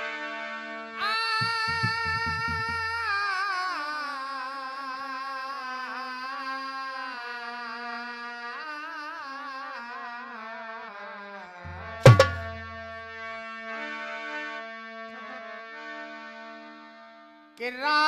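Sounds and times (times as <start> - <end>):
harmonium notes: 0.0 - 5.0, 10.7 - 17.8
man singing: 1.0 - 13.0, 17.6 - 18.0
drum strokes: 1.4 - 3.1, 11.7 - 13.0.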